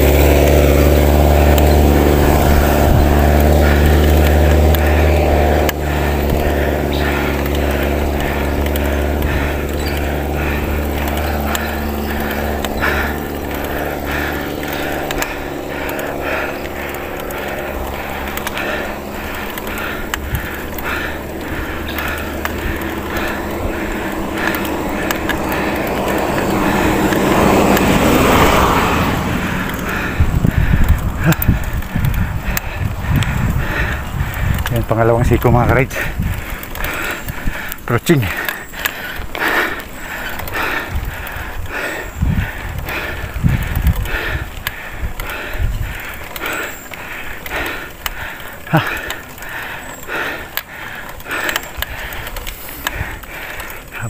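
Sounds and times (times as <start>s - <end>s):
bike tyre road noise: 0.0s - 54.0s
cyclist breathing hard: 0.0s - 54.0s
wind on microphone: 1.8s - 6.9s, 20.2s - 37.7s, 40.3s - 46.4s.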